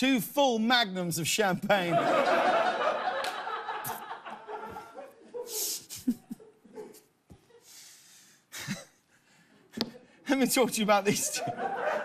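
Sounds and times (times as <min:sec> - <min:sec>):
studio audience laughing: 0:01.8 - 0:07.7, 0:11.1 - 0:12.0.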